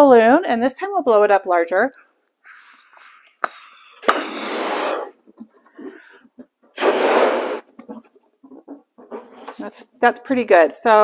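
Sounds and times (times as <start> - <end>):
breaths blown into balloon: 2.4 - 5.2, 6.8 - 7.9
person breathing in: 2.5 - 7.7.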